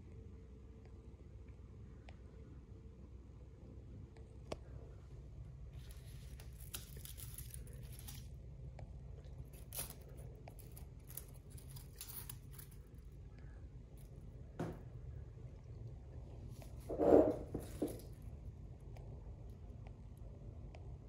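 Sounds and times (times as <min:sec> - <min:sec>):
low steady hum: 0:00.0 - 0:21.0
rustling and scraping handling: 0:05.7 - 0:08.5, 0:09.2 - 0:14.8, 0:16.3 - 0:18.3.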